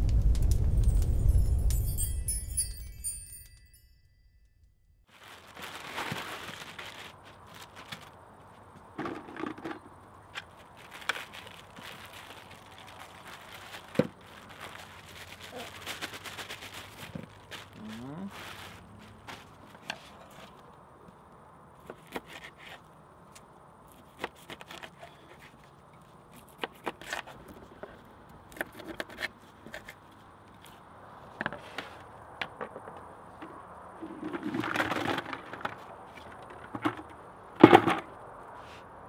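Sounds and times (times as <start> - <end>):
rustling: 5.1 - 20.8.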